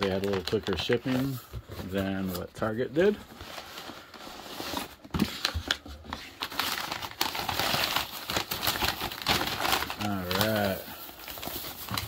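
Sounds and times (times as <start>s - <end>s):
packing paper rustling: 0.0s - 12.0s.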